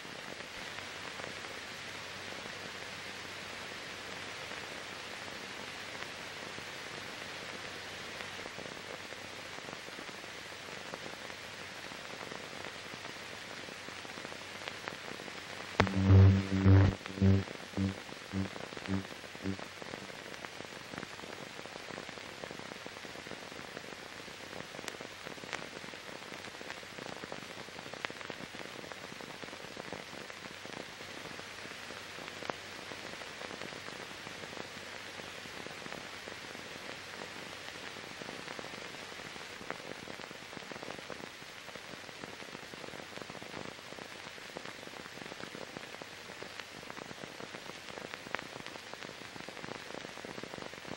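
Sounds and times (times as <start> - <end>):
film soundtrack hiss with crackles: 0.0 - 50.9
low buzzing tone pulsing: 15.8 - 19.6.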